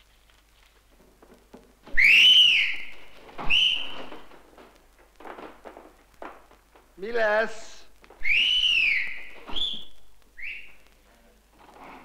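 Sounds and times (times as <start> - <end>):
audience whistling loudly: 1.9 - 4.2, 8.2 - 10.8.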